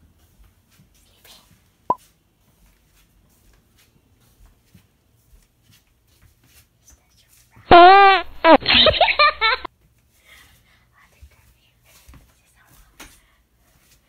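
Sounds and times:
footsteps: 0.2s - 6.7s.

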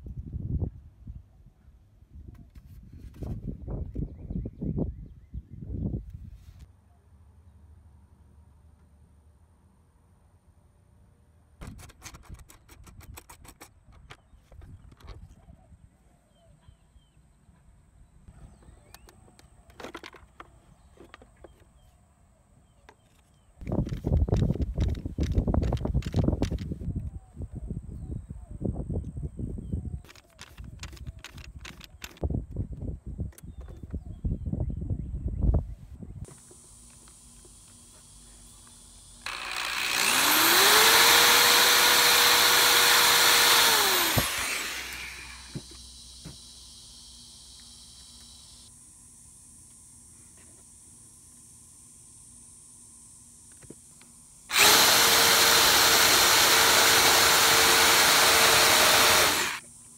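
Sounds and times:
power drill boring through plastic: 38.6s - 48.5s, 54.5s - 59.6s.

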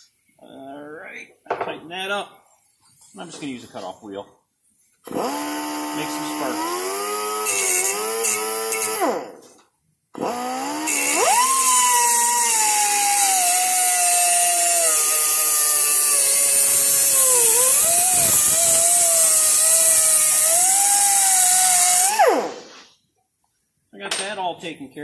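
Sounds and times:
cutoff wheel cutting metal: 5.1s - 9.6s, 10.2s - 22.8s.

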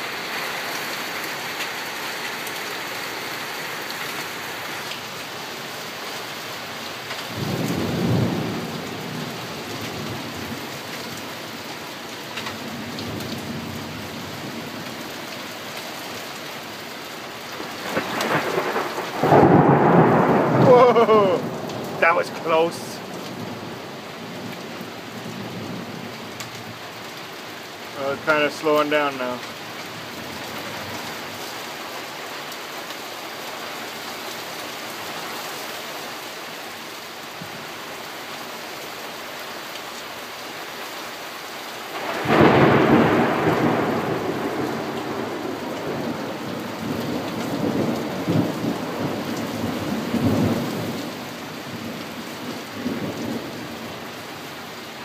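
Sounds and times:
heavy rain falling: 0.0s - 55.0s
thunderclap rumbling: 7.4s - 9.3s, 17.6s - 23.8s, 41.9s - 51.0s.

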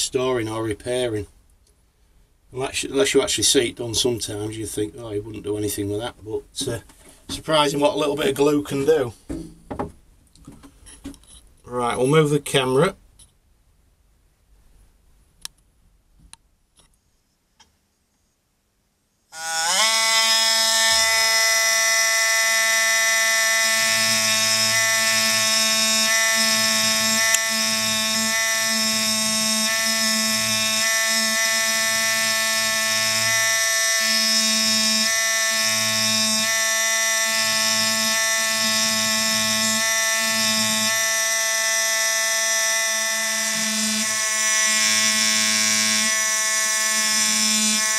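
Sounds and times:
air pen high-pitched buzz: 19.4s - 47.9s.

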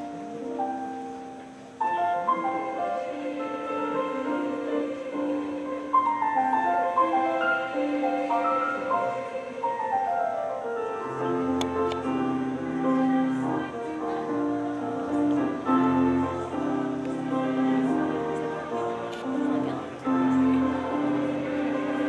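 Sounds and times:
choir singing held chords: 0.0s - 22.0s.

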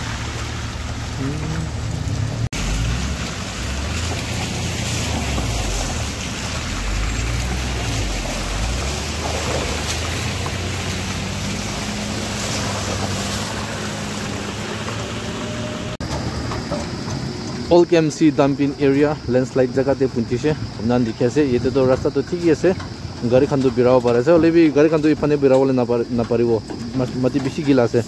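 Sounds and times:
tyres splashing in puddles: 0.0s - 28.0s
vehicle engines running slowly: 0.0s - 28.0s.

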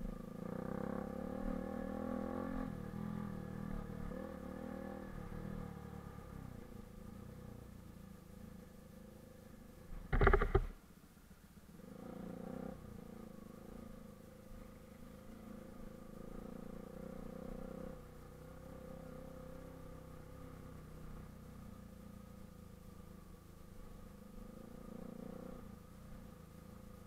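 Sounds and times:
motorcycle engine running: 0.0s - 10.8s.

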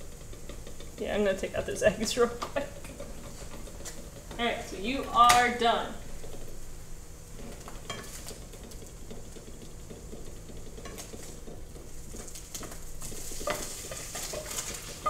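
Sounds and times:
spatula scraping the pan: 0.0s - 4.4s, 7.3s - 15.0s
eggs sizzling in a frying pan: 0.0s - 15.0s.

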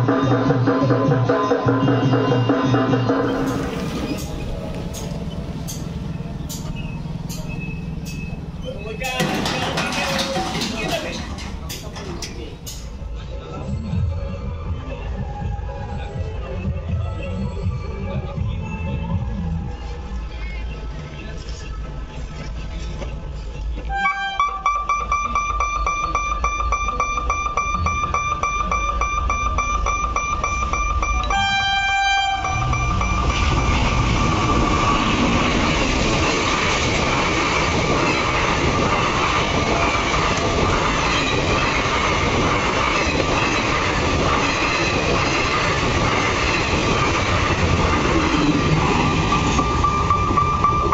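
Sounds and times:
passenger train rushing past: 0.0s - 16.6s, 24.0s - 50.9s
train wheels on rails: 2.7s - 13.2s, 25.2s - 50.9s
locomotive horn: 23.9s - 25.0s, 31.2s - 33.8s.

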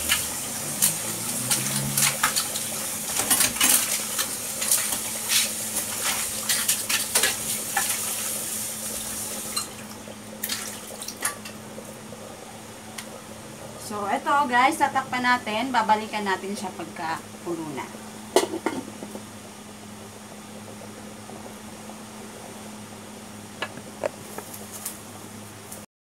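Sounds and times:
clinking pots and dishes: 18.4s - 19.2s.

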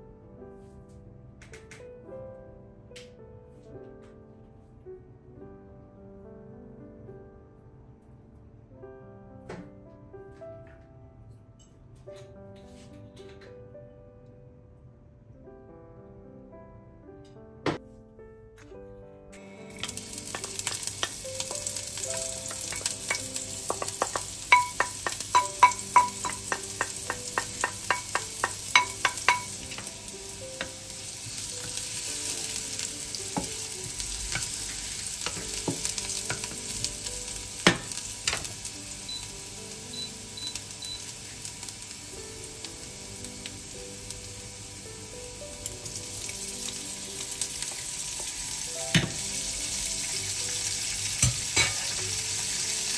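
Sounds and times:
onion sizzling in hot oil: 19.5s - 52.9s.

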